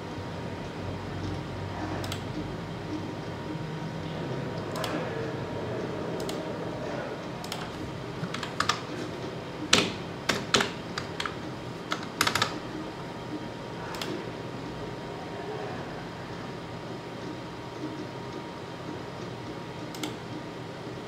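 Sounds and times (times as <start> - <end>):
steady low hum: 0.0 - 21.0
computer keyboard keystrokes: 2.0 - 2.3, 7.4 - 9.0, 9.7 - 12.7, 19.9 - 20.2.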